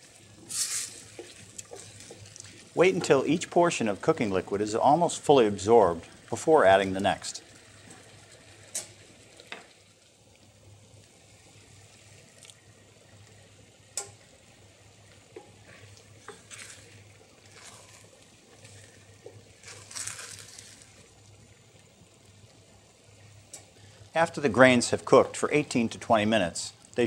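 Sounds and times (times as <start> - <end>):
spoon stirring wet rice: 0.0 - 3.3, 15.4 - 21.1
spoon tapping pan: 1.1 - 2.2, 2.9 - 3.2.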